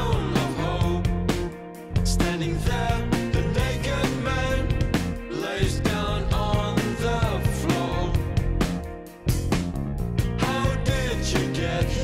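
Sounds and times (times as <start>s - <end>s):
song with drum beat and singing: 0.0s - 12.0s.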